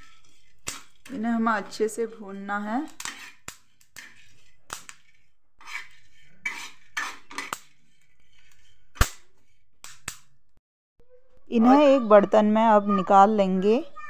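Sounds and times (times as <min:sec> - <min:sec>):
metal spoon scraping frying pan: 0:00.0 - 0:10.1.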